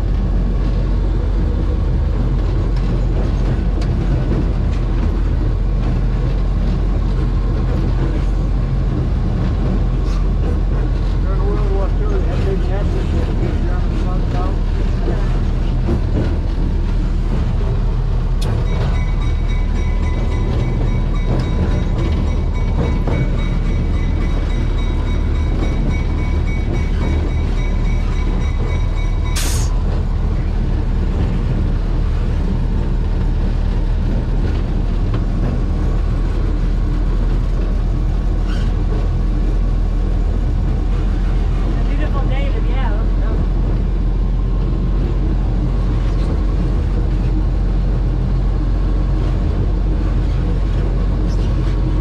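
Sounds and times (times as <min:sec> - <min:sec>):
diesel engine running: 0:00.0 - 0:52.0
locomotive bell ringing: 0:18.4 - 0:29.9
sharp hiss of air: 0:29.4 - 0:29.8.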